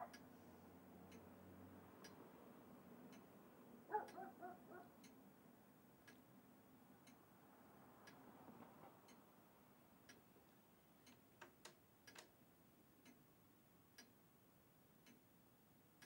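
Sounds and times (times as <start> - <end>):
clock ticking: 0.0 - 6.4, 8.9 - 9.3, 9.9 - 10.4, 11.0 - 14.3, 14.9 - 16.0
sharp clicks: 11.1 - 12.4.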